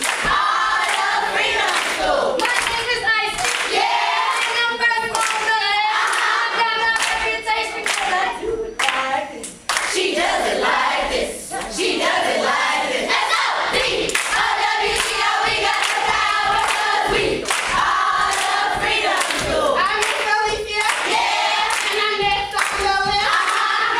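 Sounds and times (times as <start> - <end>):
hand claps: 0.0 - 8.2, 8.8 - 10.0, 14.1 - 23.8
group singing a chant: 0.0 - 23.9.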